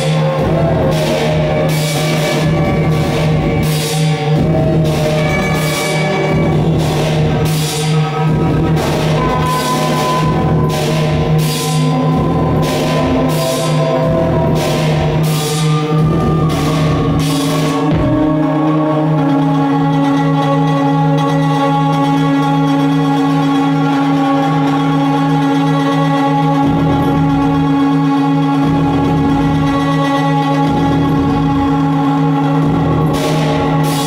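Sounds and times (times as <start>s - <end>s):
low electronic drone: 0.0s - 34.0s.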